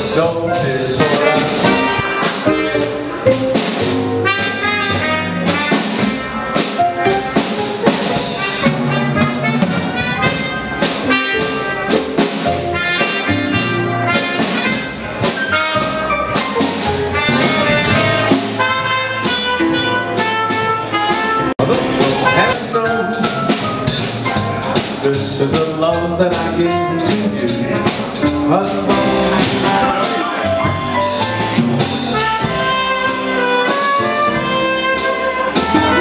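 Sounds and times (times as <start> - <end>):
drum kit beat: 0.0 - 36.0
jazz band playing: 0.0 - 36.0
trumpet melody: 0.0 - 36.0.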